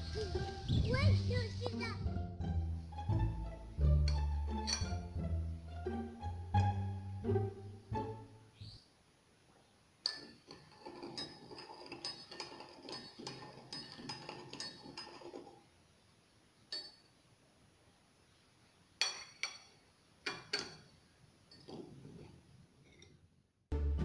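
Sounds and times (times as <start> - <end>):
spoon clinking on cup and saucer: 4.1 - 5.0, 10.0 - 15.6, 16.7 - 17.1, 19.0 - 20.9, 21.5 - 21.9
teaspoon stirring in ceramic cup: 10.0 - 15.6, 21.5 - 22.2.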